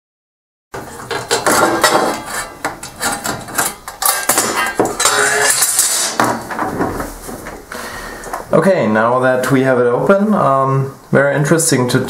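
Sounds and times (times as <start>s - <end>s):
sheet metal clanks and rattles: 0.8s - 7.7s.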